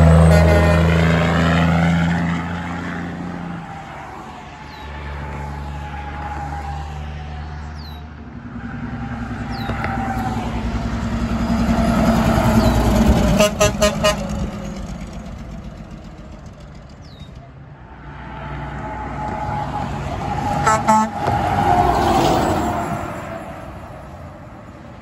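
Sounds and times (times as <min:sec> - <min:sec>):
truck air horn blasts: 0:00.0 - 0:01.6, 0:13.2 - 0:14.6, 0:20.6 - 0:21.7
truck passing by: 0:00.0 - 0:25.0.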